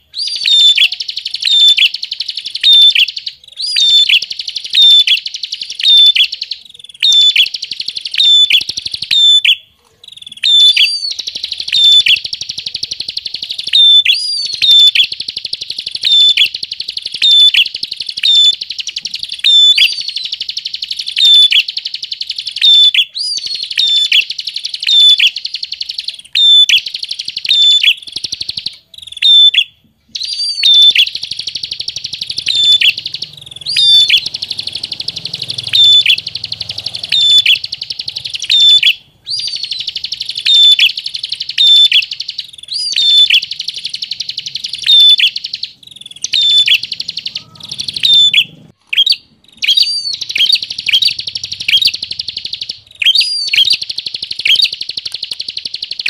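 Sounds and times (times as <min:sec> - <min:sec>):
songbird buzzing trill: 0:13.7 - 0:48.4.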